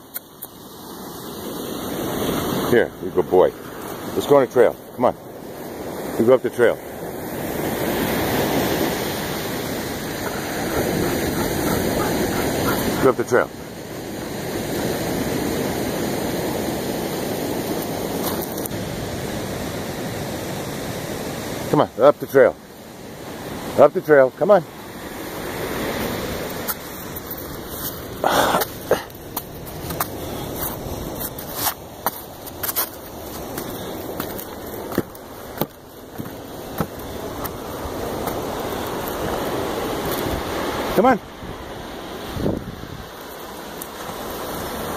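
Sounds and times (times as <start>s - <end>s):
ocean surf on pebble beach: 0.0s - 44.9s
wind: 0.0s - 44.9s
footsteps on wooden steps and rocks: 26.5s - 39.4s.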